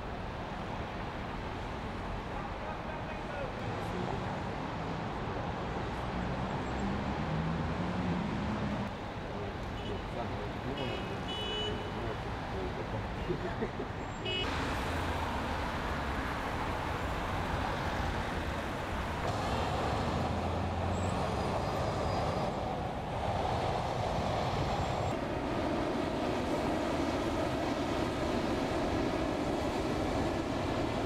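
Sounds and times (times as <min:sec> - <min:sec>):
city street traffic: 0:00.0 - 0:31.0.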